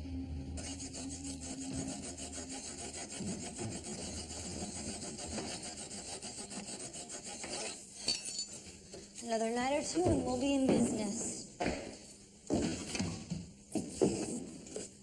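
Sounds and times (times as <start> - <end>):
hand tool rasping on iron bars: 0.6 - 8.4.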